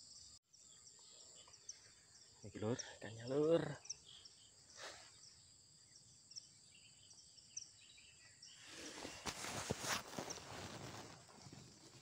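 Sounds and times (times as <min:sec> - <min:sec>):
insect buzzing and chirping: 0:00.0 - 0:12.0
rustling of dry leaves: 0:08.6 - 0:12.0.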